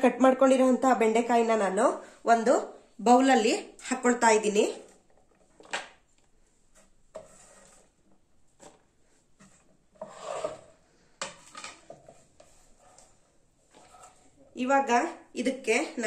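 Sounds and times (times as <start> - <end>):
okra scraped off chopping board: 9.4 - 13.1.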